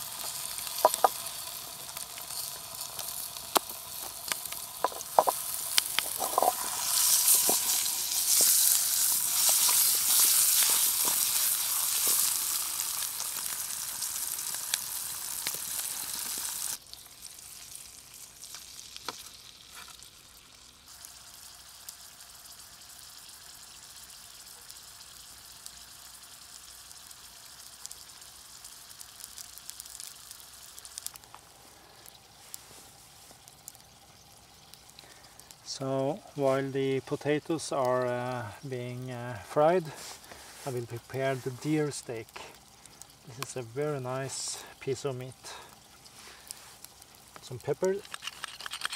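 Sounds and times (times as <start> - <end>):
potatoes sizzling in a pan: 0.0 - 48.9
stirring clicks: 1.8 - 12.2, 47.3 - 48.9.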